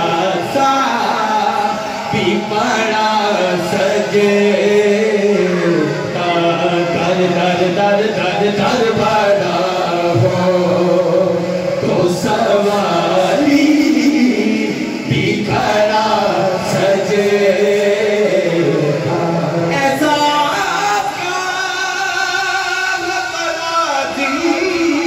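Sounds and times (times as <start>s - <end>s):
men singing devotional song: 0.0s - 25.0s.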